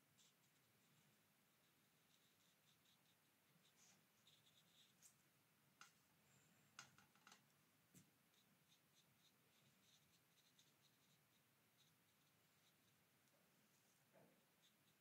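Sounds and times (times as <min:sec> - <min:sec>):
brush ticking on paper: 0:00.0 - 0:06.0, 0:06.7 - 0:15.0.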